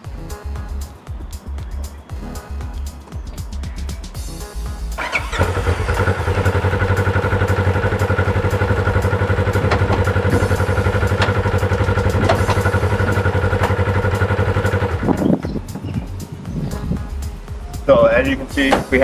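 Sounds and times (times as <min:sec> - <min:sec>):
side-by-side engine idling: 0:05.0 - 0:15.5.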